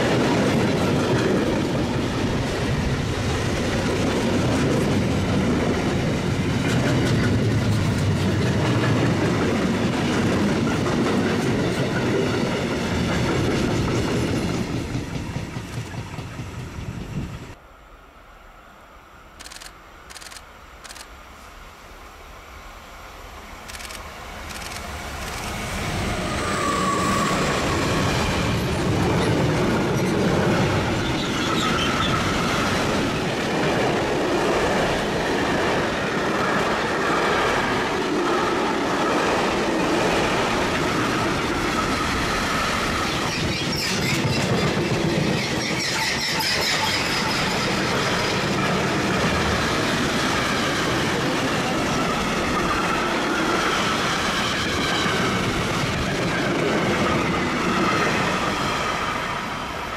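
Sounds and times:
train wheels clattering over rails: 0.0s - 17.5s, 26.3s - 58.8s
metallic wheel squeal: 26.3s - 27.7s, 45.4s - 47.6s.

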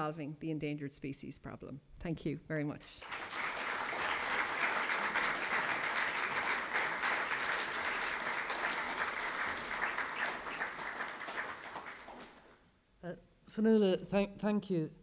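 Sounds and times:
audience applauding: 3.0s - 12.6s.

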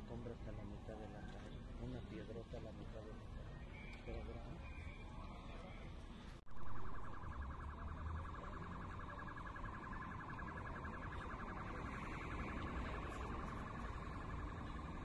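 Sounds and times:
electronic alarm warbling: 6.5s - 15.0s.

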